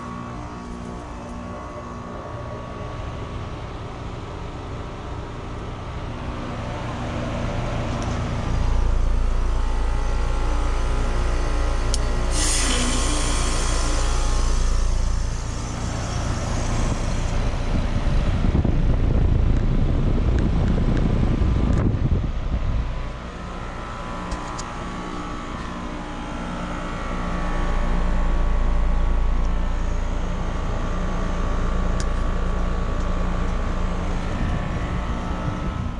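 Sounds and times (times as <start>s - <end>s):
heat pump humming: 0.0s - 35.9s
low rumble: 0.0s - 35.9s
rush of hissing: 12.3s - 17.6s.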